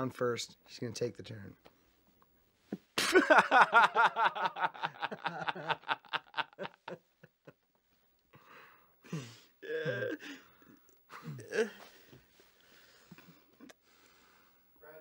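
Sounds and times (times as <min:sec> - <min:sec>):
man laughing hard: 0:03.0 - 0:07.6.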